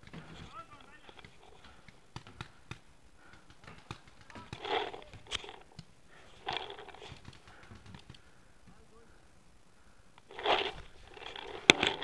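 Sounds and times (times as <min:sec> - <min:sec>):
rustling of gear and movement: 0:00.0 - 0:08.3, 0:10.2 - 0:12.0
sharp clicks: 0:00.0 - 0:08.3.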